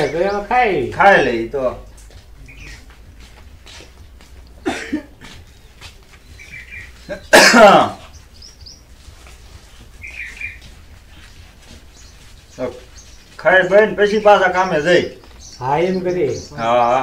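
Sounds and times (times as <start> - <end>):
small birds chirping: 0.0 - 17.0
man coughing burst: 4.6 - 5.3, 7.1 - 8.1.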